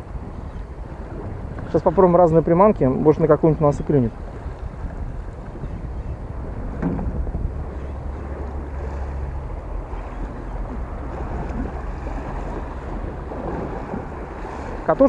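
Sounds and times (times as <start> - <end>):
waves lapping against pier: 0.0 - 15.0
wind buffeting microphone: 0.0 - 15.0.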